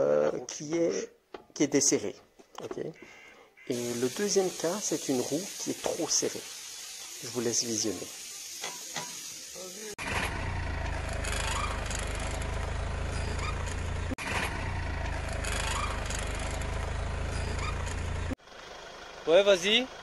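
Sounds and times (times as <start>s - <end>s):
car wheel rumbling and grinding: 10.0s - 18.4s.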